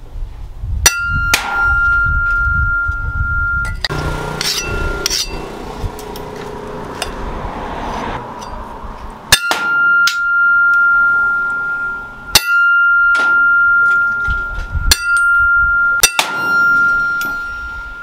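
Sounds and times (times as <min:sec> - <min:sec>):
cleaver striking metal rod on anvil: 0:00.9 - 0:02.0, 0:03.7 - 0:07.2, 0:09.3 - 0:18.0
long metallic ringing tone: 0:00.9 - 0:07.4, 0:08.2 - 0:18.0.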